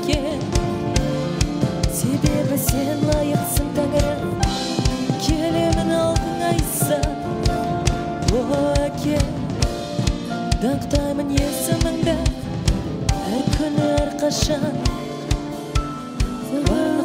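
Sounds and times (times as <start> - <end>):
drum kit beat: 0.0 - 17.0
worship band playing: 0.0 - 17.0
people singing: 16.4 - 17.0.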